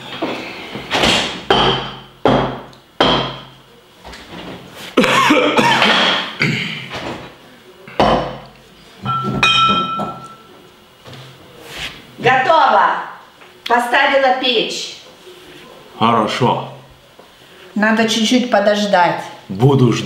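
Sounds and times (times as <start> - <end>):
utensils knocking and banging: 7.9 - 10.5
ringing clink: 9.1 - 10.5.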